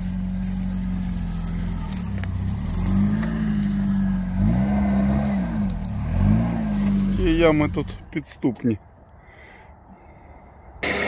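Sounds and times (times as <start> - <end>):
off-road vehicle engine revving: 0.0 - 8.2.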